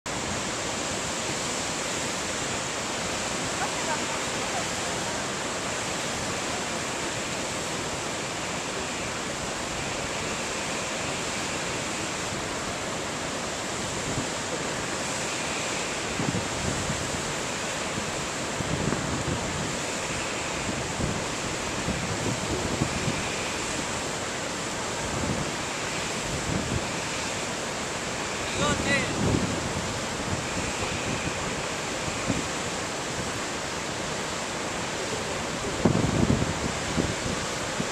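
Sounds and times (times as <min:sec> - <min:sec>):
whitewater rushing over rocks: 0:00.1 - 0:37.9
wind buffeting microphone: 0:16.0 - 0:24.0, 0:24.6 - 0:27.1, 0:28.2 - 0:34.2, 0:35.6 - 0:37.9.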